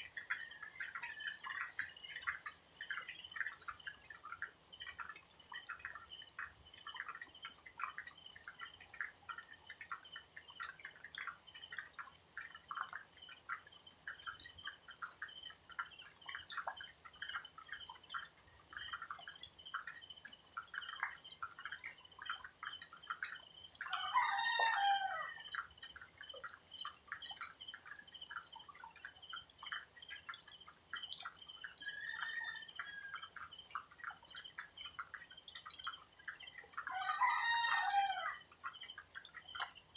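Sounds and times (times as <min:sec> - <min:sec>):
rooster crowing: 0:23.9 - 0:25.5, 0:31.9 - 0:33.3, 0:36.9 - 0:38.4.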